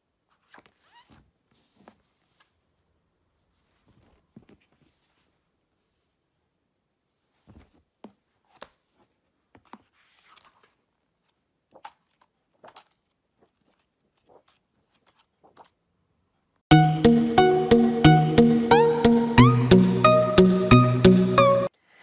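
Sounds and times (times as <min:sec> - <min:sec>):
page rustles: 0:00.3 - 0:02.7, 0:03.4 - 0:06.0, 0:07.2 - 0:15.8
loud music: 0:16.7 - 0:21.7.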